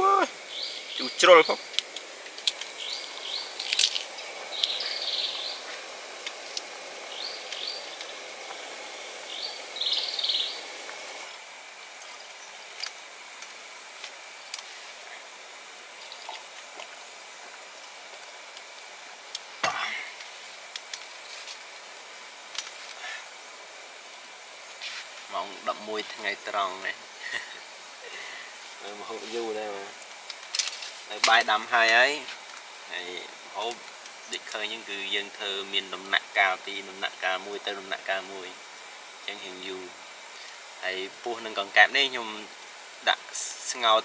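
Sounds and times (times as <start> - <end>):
birds chirping: 0.0 - 13.3, 24.6 - 30.0
background hiss: 0.0 - 44.0
high insect drone: 0.0 - 44.0.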